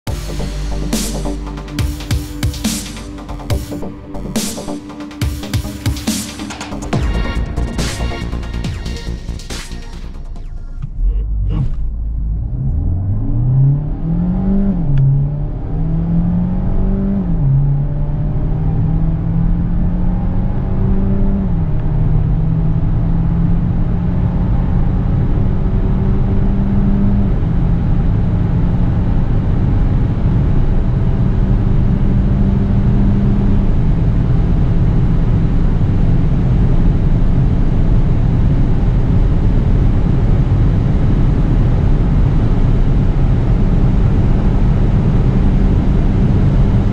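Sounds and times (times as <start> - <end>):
car engine accelerating through gears: 0.0 - 46.9
road and wind noise: 10.8 - 46.9.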